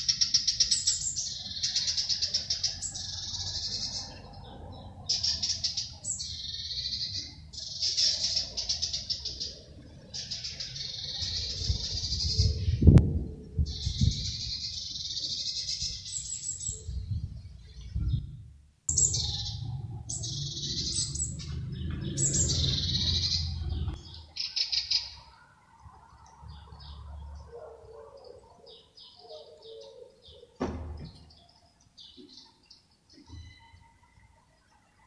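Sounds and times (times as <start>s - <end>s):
songbird twittering: 13.6s - 25.4s.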